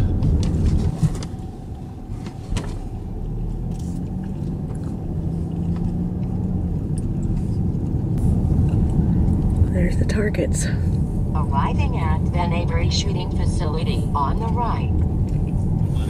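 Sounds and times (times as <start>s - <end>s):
car interior road rumble: 0.0s - 16.0s.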